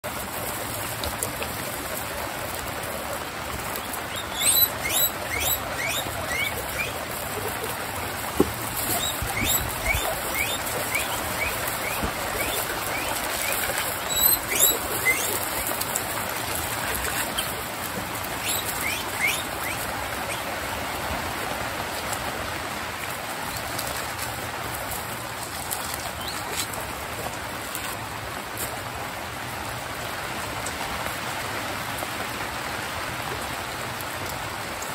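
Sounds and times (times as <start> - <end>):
heavy rain hissing: 0.0 - 34.9
guinea pigs wheeking: 3.8 - 7.8, 8.8 - 17.7, 18.3 - 20.5.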